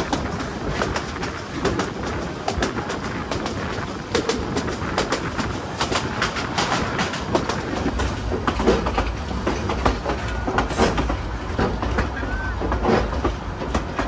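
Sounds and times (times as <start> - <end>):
train running rumble: 0.0 - 14.0
train wheels clacking over rail joints: 0.0 - 14.0.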